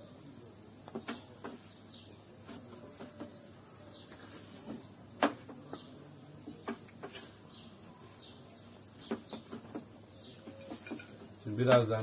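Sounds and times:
birds chirping: 0.0s - 12.0s
dishes and cutlery clinking: 10.5s - 11.9s.

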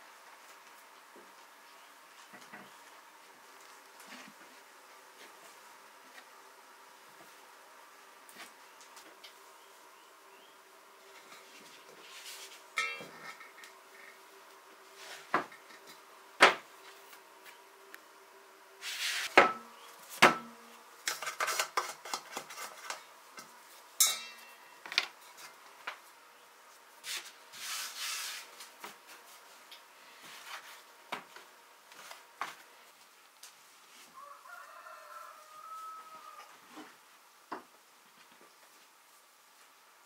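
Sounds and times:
utensils and dishes clinking: 12.8s - 13.5s, 24.0s - 24.8s.

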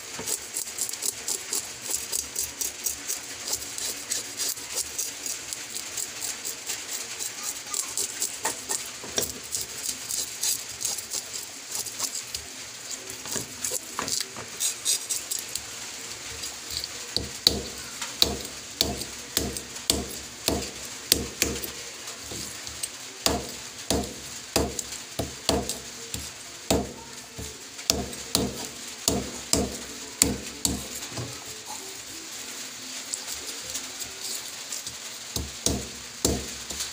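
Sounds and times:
knife scraping fish scales: 0.1s - 15.7s.

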